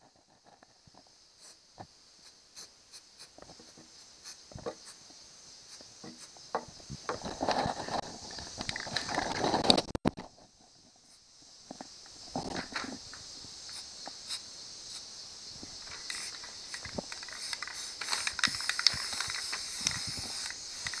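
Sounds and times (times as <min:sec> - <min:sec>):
aerosol spray can hissing: 0:13.7 - 0:15.2, 0:15.8 - 0:21.0.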